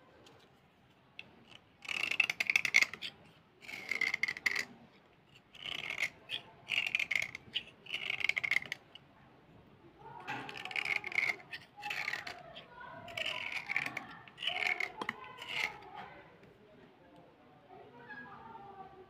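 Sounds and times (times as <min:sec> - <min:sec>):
knife scraping slate pencil: 0:01.2 - 0:09.0, 0:10.2 - 0:16.1.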